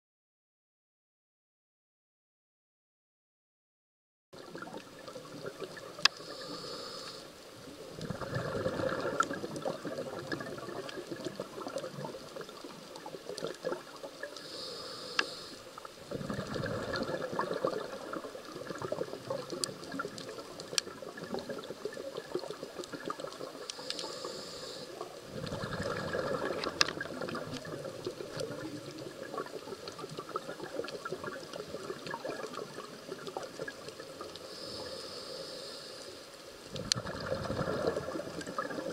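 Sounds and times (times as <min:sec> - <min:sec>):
bubbling exhale: 0:05.6 - 0:12.7, 0:13.3 - 0:38.9
hissing regulator inhale: 0:06.1 - 0:07.4, 0:14.4 - 0:15.9, 0:23.7 - 0:26.7, 0:34.4 - 0:36.4.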